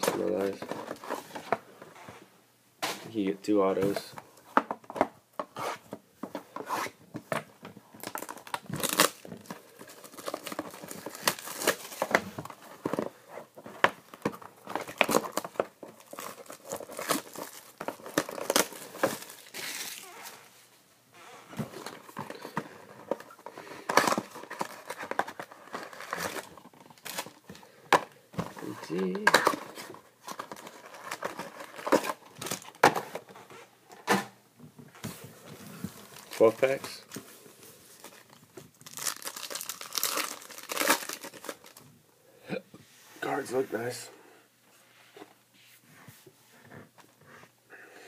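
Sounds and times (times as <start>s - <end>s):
plastic wrap tearing and crumpling: 8.0s - 12.1s, 14.8s - 20.5s, 38.0s - 41.8s.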